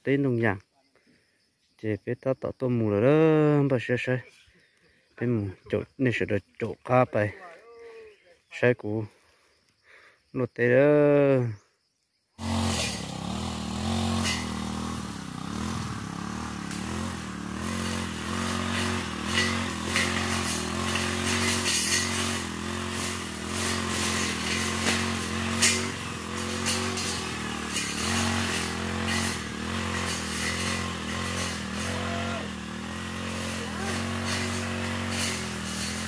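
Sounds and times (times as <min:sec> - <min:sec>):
brush cutter engine running: 0:12.4 - 0:36.0.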